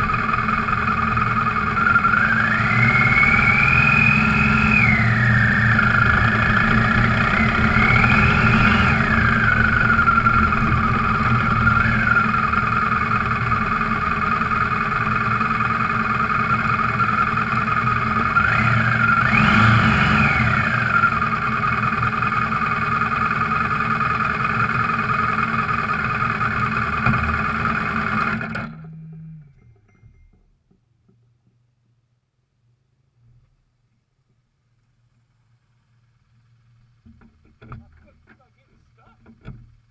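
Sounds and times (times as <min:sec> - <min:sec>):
motorcycle engine revving: 0:00.0 - 0:29.8.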